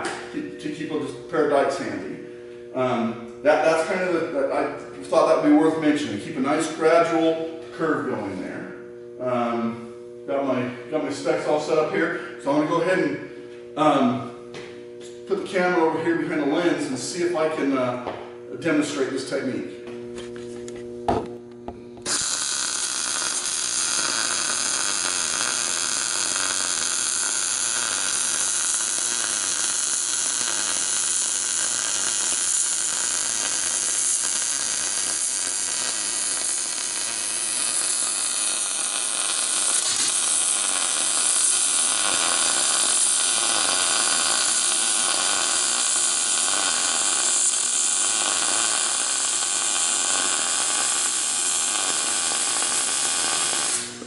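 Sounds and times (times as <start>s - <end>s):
welding arc hissing sizzle: 0.0s - 8.4s, 21.7s - 54.0s.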